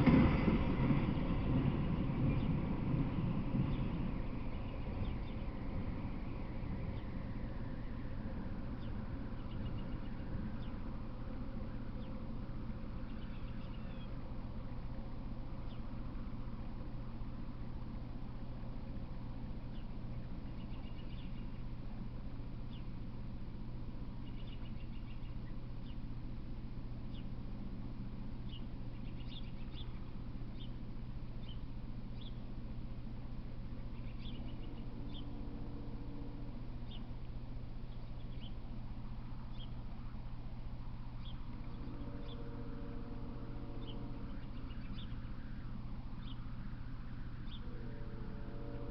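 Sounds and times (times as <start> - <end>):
steady low hum: 0.0 - 48.9
lower pitched bird call: 3.7 - 12.3, 12.9 - 14.3, 19.7 - 21.7, 28.5 - 30.8, 31.4 - 32.5, 33.8 - 37.2, 37.9 - 38.7, 41.2 - 48.9
high chirps of small birds: 13.0 - 14.2, 24.2 - 26.0, 28.5 - 30.8, 33.9 - 35.3, 37.9 - 38.6, 43.8 - 45.6.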